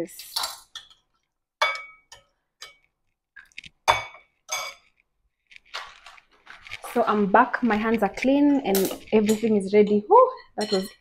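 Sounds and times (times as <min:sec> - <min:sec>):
metal spoon clinking glass bowl: 0:01.6 - 0:02.9, 0:03.9 - 0:04.9, 0:10.3 - 0:11.0.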